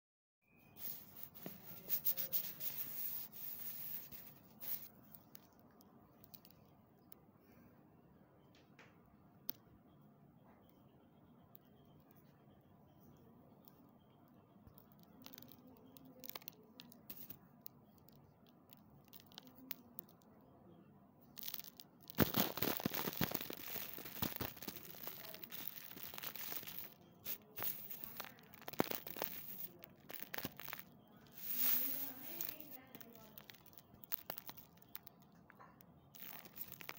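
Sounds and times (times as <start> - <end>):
chalk crunching between fingers: 0.8 - 5.5, 21.4 - 35.2.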